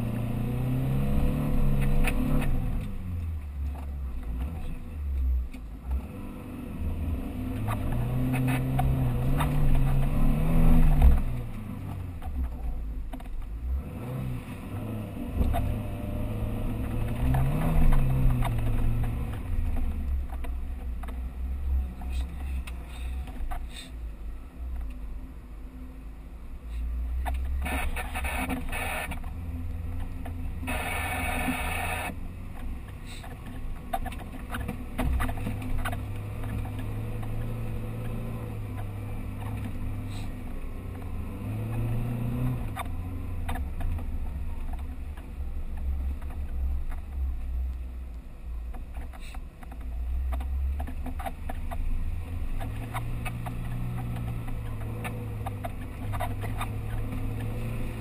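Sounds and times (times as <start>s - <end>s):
vehicle engine running under load: 26.4s - 58.0s.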